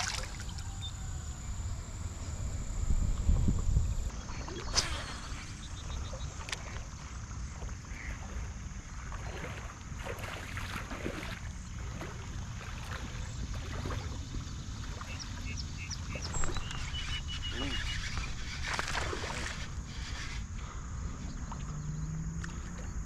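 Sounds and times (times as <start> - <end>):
steady low rumble: 0.1 - 9.1.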